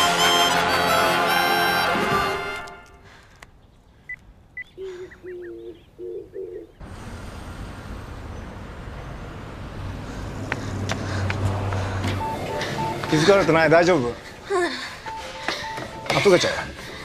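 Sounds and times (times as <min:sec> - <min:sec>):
low repeated bird calls: 0:03.5 - 0:06.8
faint bird chirps: 0:03.6 - 0:06.8.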